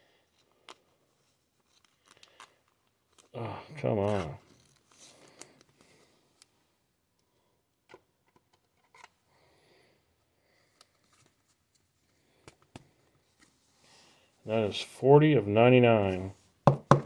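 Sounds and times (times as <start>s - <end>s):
soft plastic rustling: 0.1s - 6.6s, 10.4s - 14.6s.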